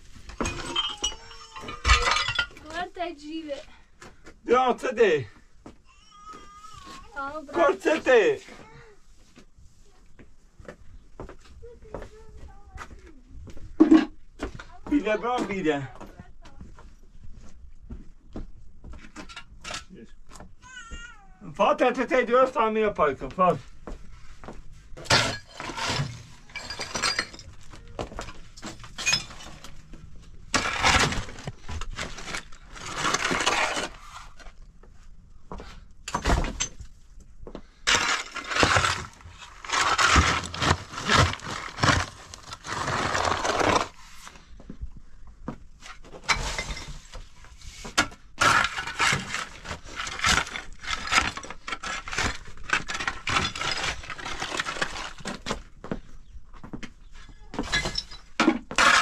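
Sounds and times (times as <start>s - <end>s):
shovel scraping rubble: 0.0s - 2.8s, 24.9s - 34.6s, 37.8s - 44.4s, 45.8s - 55.6s, 57.6s - 59.0s
stones clattering: 0.1s - 2.8s, 25.0s - 29.8s, 37.9s - 44.0s, 47.9s - 55.7s.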